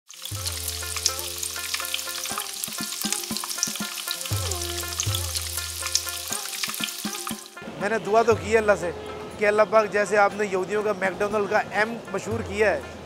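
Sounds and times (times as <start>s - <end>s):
food sizzling on griddle: 0.1s - 7.6s
background music: 0.1s - 13.0s.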